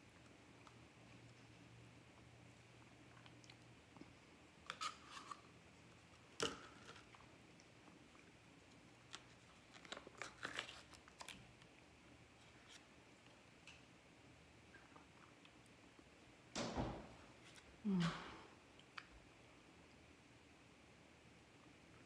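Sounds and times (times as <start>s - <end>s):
spoon scraping plastic cup: 4.7s - 5.5s.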